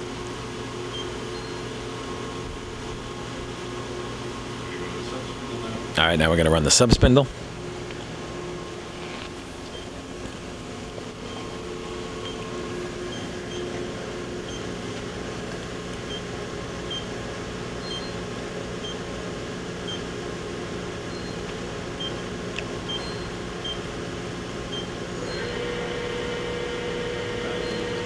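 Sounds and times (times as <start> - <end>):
machine hum: 0.0 - 28.0
short electronic beeps: 0.9 - 1.6, 17.8 - 18.2, 21.1 - 21.4, 22.9 - 23.8
spindle steady tone: 22.9 - 23.8, 24.7 - 28.0.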